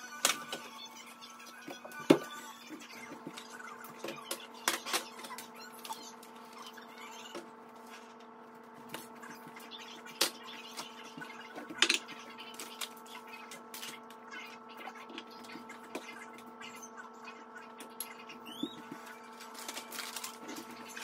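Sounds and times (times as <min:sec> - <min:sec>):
packages being handled: 0:18.6 - 0:21.0.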